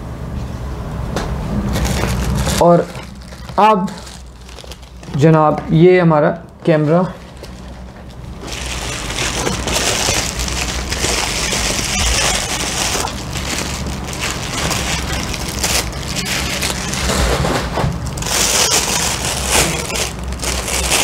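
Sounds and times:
bubble wrap and plastic crinkling: 1.6s - 21.0s.

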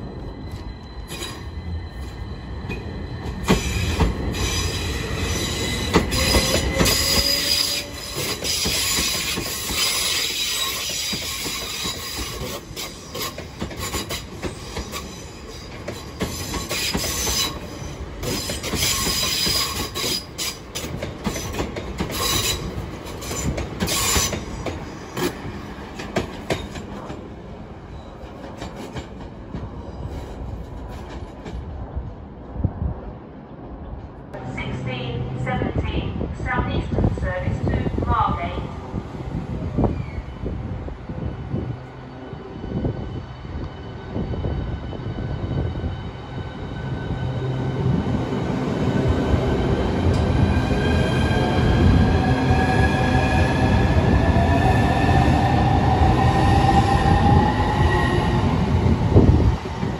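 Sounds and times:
high wheel squeal: 0.1s - 20.6s
train wheels clicking over rail joints: 8.1s - 27.2s.

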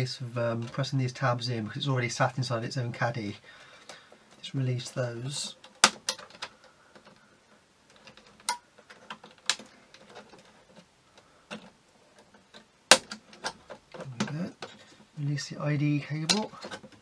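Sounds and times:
sharp plastic snaps: 5.6s - 7.2s, 7.9s - 10.5s, 12.5s - 14.8s.

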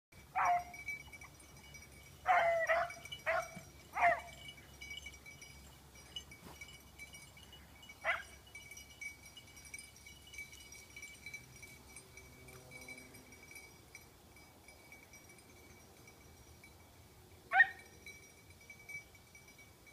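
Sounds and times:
dogs baying: 0.4s - 0.8s, 2.2s - 4.5s.

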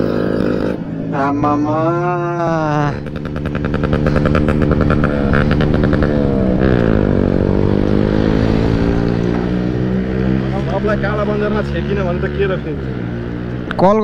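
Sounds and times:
motorcycle engine slowing to idle: 3.0s - 7.3s.

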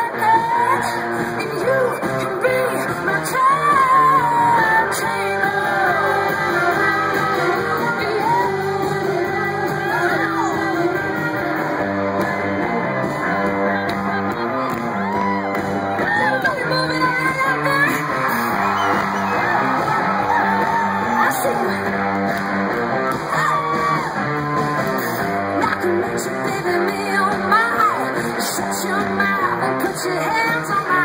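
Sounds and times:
woman singing: 0.0s - 11.8s, 16.0s - 18.1s, 25.6s - 31.0s
drums: 0.0s - 31.0s
electric guitars: 0.0s - 31.0s.

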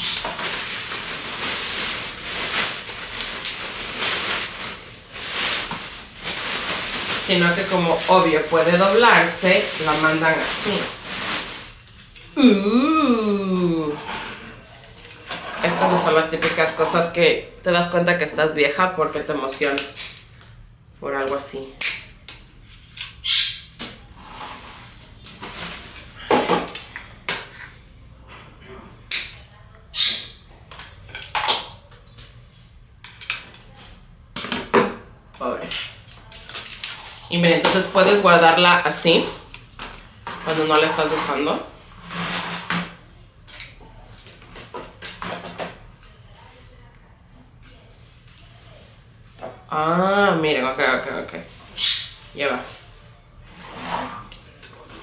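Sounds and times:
plastic wrapping rustling: 0.0s - 17.2s, 23.9s - 26.8s.

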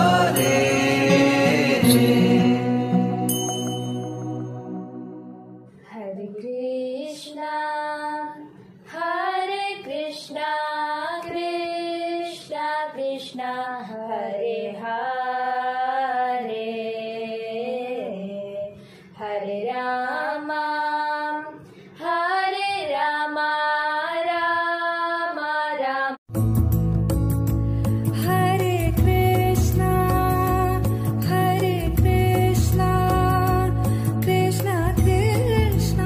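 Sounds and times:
person singing devotional melody: 0.0s - 6.9s, 28.1s - 36.0s
instrumental music with heavy bass: 26.3s - 36.0s.

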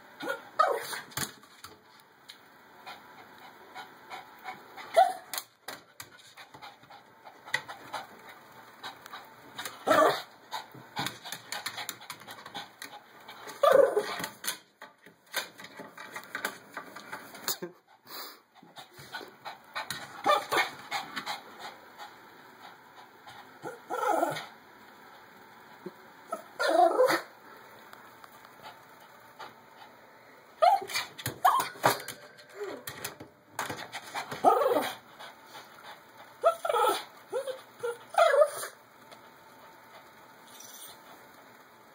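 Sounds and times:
dog whining and yipping: 13.6s - 14.2s, 26.3s - 27.3s, 30.6s - 31.8s, 36.4s - 38.8s.

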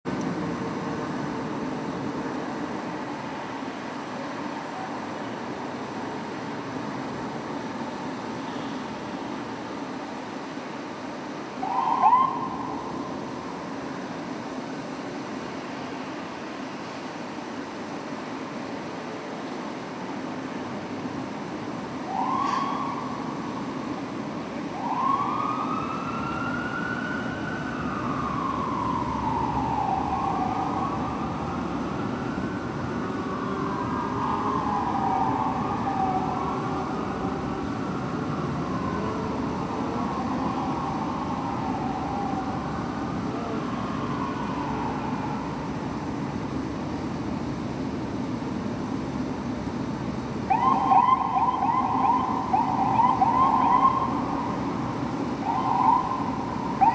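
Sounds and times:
fire truck sirens wailing: 11.2s - 14.0s, 21.1s - 46.8s, 50.4s - 56.9s
siren fast pulsing yelp: 11.6s - 12.8s, 22.1s - 23.1s, 50.5s - 54.3s, 55.4s - 56.9s.

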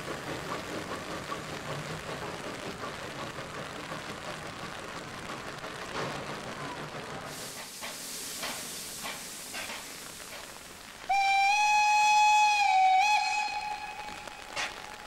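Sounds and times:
low steam hiss: 0.0s - 15.0s
steam whistle blast: 11.1s - 15.0s.

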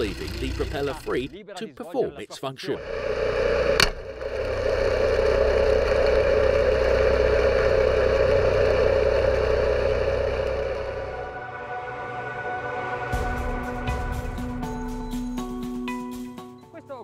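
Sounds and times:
outboard motor humming underwater: 2.8s - 11.7s.

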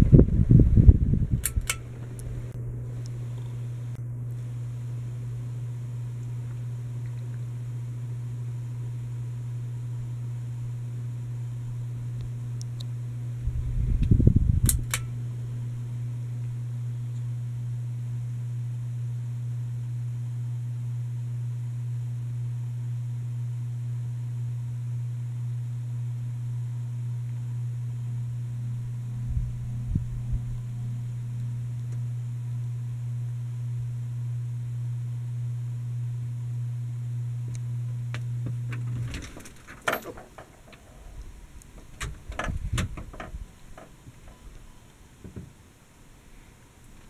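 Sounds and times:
ceiling fan motor hum: 0.0s - 47.0s
brief low rumble: 28.7s - 31.4s.

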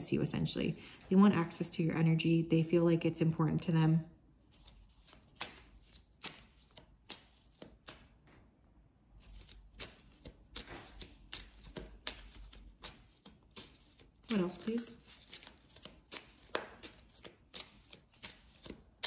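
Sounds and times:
cards being shuffled: 4.5s - 8.2s, 9.2s - 19.0s.

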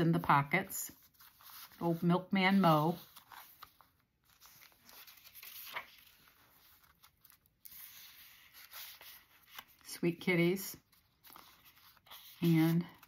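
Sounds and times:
pages rustling and clicking: 3.0s - 9.9s.

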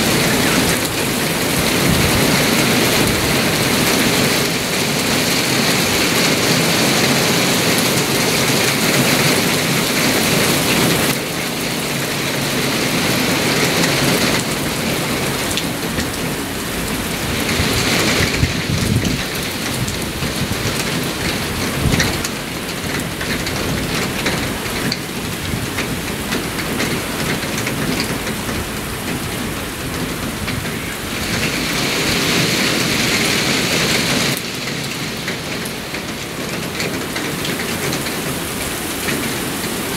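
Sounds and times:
thunder rumbles: 0.0s - 6.9s, 12.4s - 38.4s
heavy rain: 0.0s - 39.9s
squall wind: 15.6s - 39.9s.

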